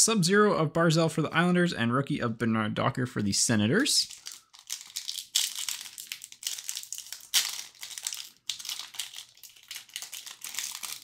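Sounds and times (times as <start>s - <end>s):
wrapper crinkling: 4.0s - 11.0s.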